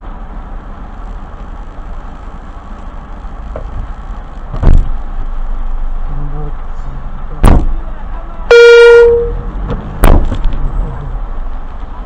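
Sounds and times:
low road rumble: 0.0s - 12.0s
loud thump: 4.5s - 5.0s, 7.4s - 7.8s, 9.7s - 10.5s.

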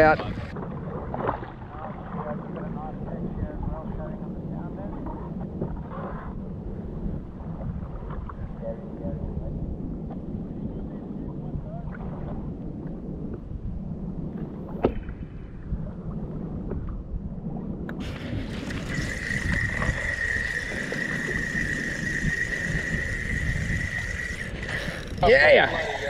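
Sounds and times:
wind and water noise: 0.0s - 26.0s
fishing reel whirring: 18.0s - 26.0s.

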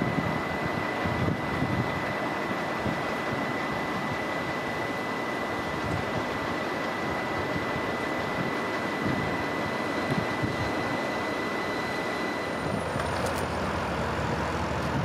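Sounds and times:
wind buffeting microphone: 0.0s - 2.1s, 7.4s - 10.8s
electric train humming: 0.0s - 15.0s.

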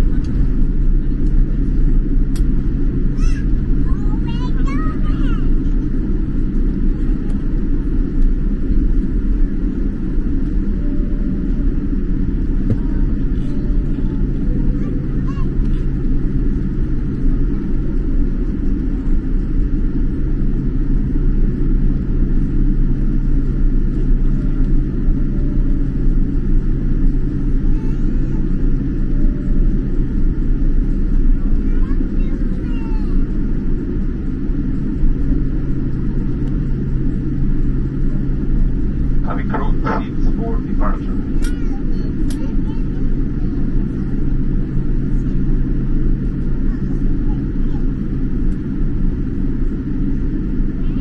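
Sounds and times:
jet engines rumbling: 0.0s - 51.0s
low cabin hum: 0.0s - 51.0s.

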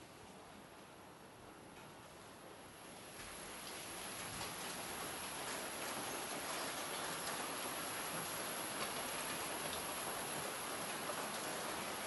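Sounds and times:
steady rain falling: 2.7s - 12.0s
faint raindrop ticks: 3.2s - 12.0s.

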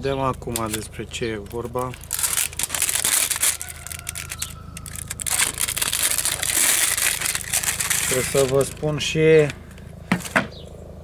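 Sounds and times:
packaging crinkling and tearing: 0.5s - 9.0s.

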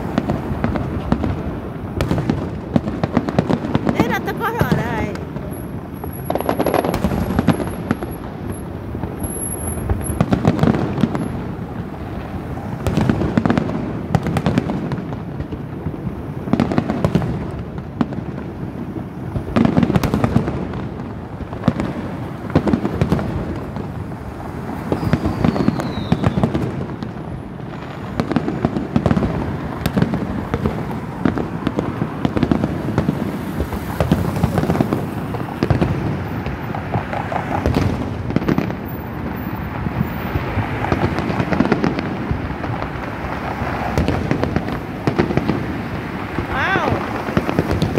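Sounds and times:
fireworks booming: 0.0s - 47.9s
fireworks crackling: 0.0s - 47.9s.

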